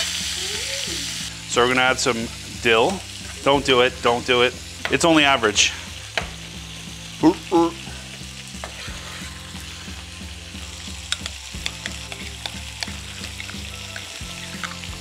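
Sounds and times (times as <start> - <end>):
chicken sizzling in hot oil: 0.0 - 15.0
fat spattering crackles: 10.8 - 15.0.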